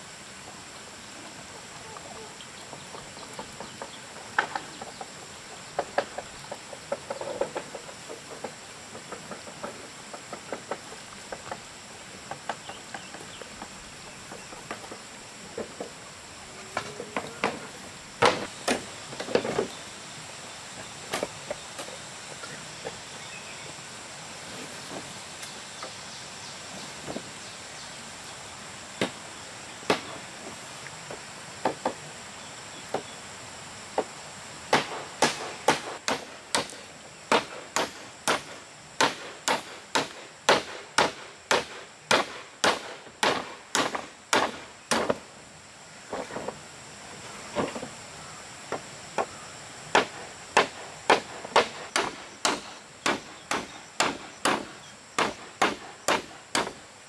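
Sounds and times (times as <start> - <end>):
hand tool striking wood: 18.2 - 19.7, 34.7 - 45.2, 48.7 - 56.8.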